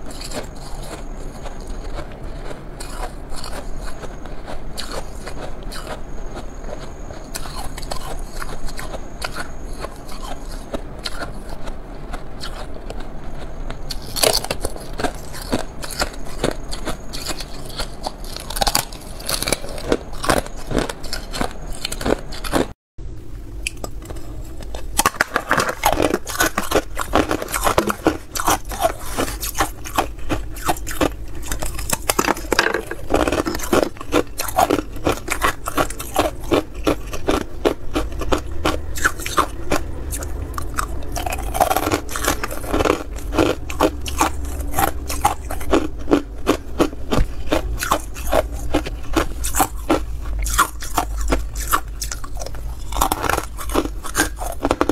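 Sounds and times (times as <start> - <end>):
ice crunching between teeth: 0.0 - 22.7, 23.6 - 54.9.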